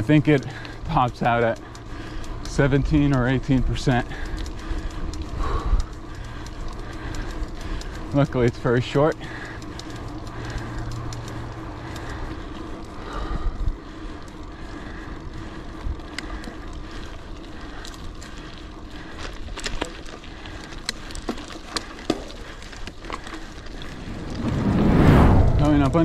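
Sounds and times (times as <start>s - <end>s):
bike tyres rolling on gravel: 0.0s - 26.0s
sharp clicks and ticks: 0.0s - 26.0s
wind on microphone: 23.7s - 26.0s.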